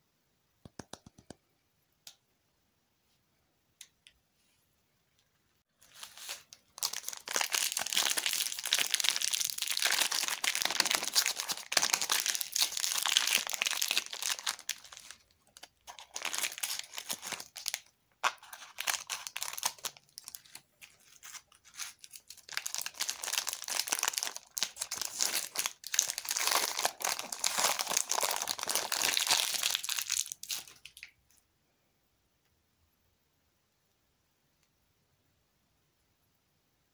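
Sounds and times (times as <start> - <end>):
plastic wrapper crinkling: 5.8 - 31.2.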